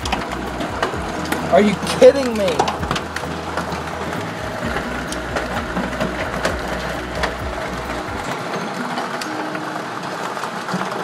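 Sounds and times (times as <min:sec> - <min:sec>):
low rumble: 0:00.0 - 0:08.3
hail pelting pavement and cars: 0:00.0 - 0:11.0.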